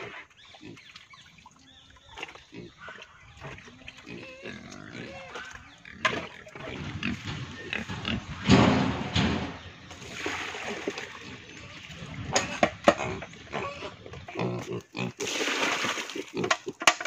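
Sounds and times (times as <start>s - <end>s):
pigs grunting: 2.2s - 9.6s, 10.8s - 17.0s
sharp knocks: 6.8s - 9.7s
wet feed splashing into trough: 9.9s - 13.2s, 15.1s - 17.0s.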